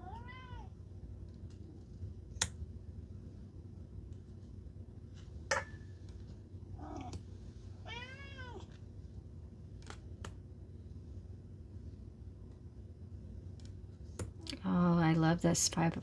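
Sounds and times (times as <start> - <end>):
cat meowing: 0.0 - 0.7, 7.8 - 8.7.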